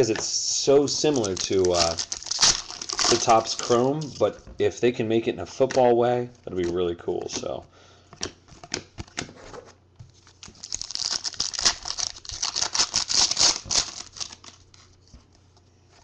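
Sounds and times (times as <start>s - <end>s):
foil wrapper tearing and crinkling: 0.9s - 4.0s, 10.4s - 14.7s.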